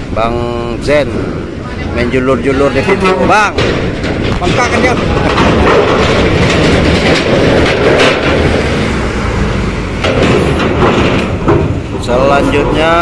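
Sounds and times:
clattering knocks: 2.1s - 13.0s
bus engine driving past: 6.1s - 12.2s.

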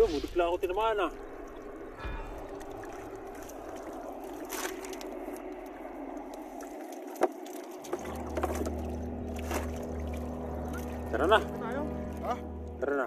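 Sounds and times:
low steady hum: 0.0s - 13.0s
water dripping off a net: 1.1s - 11.1s.

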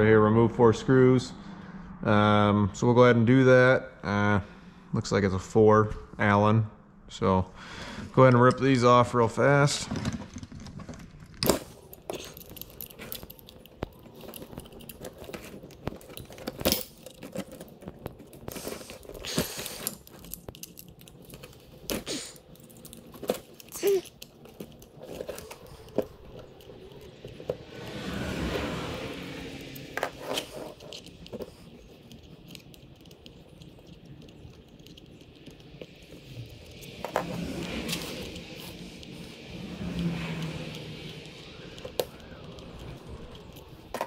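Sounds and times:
rustling: 9.7s - 44.0s
allen key clicking and scraping: 10.2s - 44.0s.

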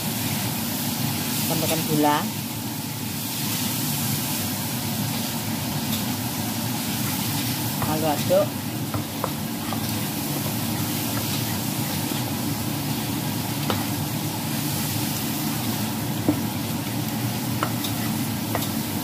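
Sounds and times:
batter being stirred: 7.0s - 14.0s.

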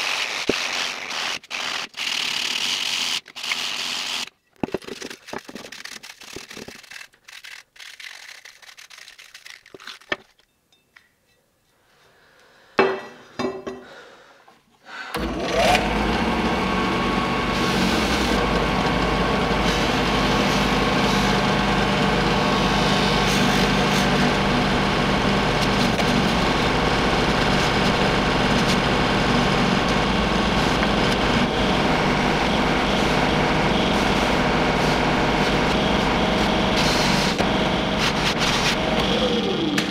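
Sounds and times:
hand sanding on steel blade: 5.5s - 10.1s
drill press sanding disc running: 15.2s - 39.9s.

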